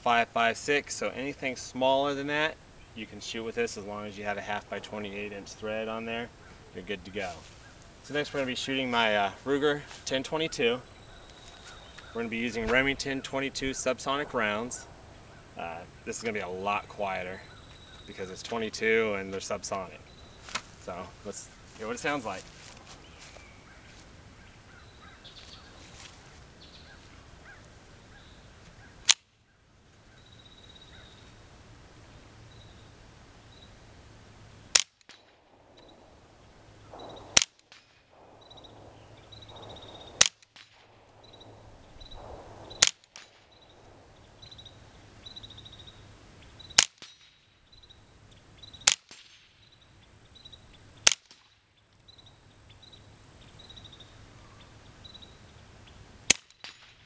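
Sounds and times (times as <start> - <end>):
suppressed rifle shots: 34.7 - 44.8, 46.6 - 47.4, 48.7 - 49.5, 51.0 - 51.6, 56.2 - 57.0
bullets hitting steel targets: 36.9 - 38.7, 39.5 - 40.9, 42.7 - 43.5, 46.8 - 47.4, 51.0 - 51.5, 56.3 - 57.0.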